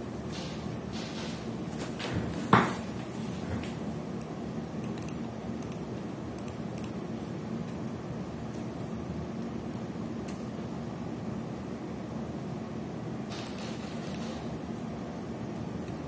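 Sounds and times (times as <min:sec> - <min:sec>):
low hum and hiss: 0:00.0 - 0:16.0.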